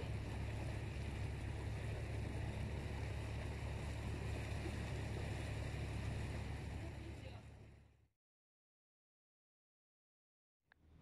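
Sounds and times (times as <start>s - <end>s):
boat motor humming: 0.0s - 8.1s
water and air noise: 0.0s - 8.1s, 10.7s - 11.0s.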